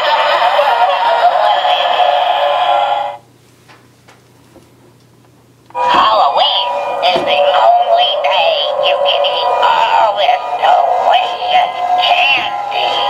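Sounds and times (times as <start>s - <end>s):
tinny electronic tune with synthetic singing: 0.0s - 3.2s, 5.8s - 13.0s.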